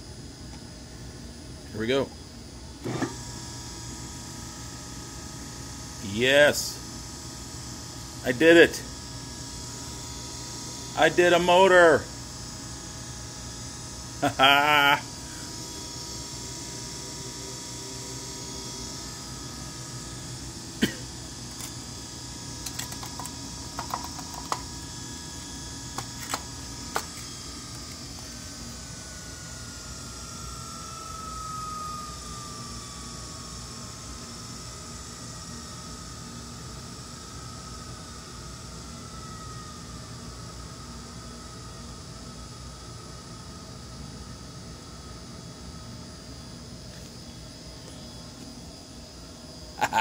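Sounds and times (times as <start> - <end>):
electric motor humming: 8.8 - 34.6
thin whine falling in pitch: 9.8 - 48.8.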